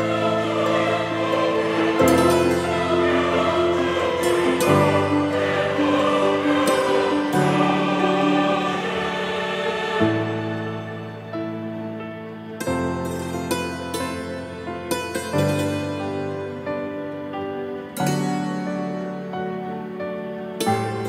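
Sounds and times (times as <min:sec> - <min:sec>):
choir singing held chords: 0:00.0 - 0:14.4.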